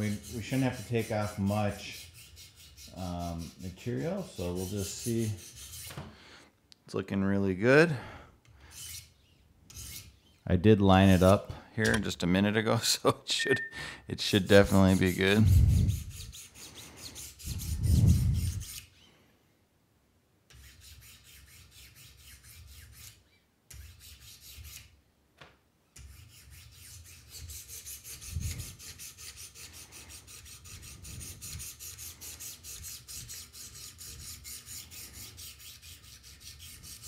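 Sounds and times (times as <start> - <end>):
sharpening stones rasping on knife: 0.0 - 5.9, 8.7 - 9.1, 9.7 - 10.1, 20.5 - 24.9, 26.0 - 37.0.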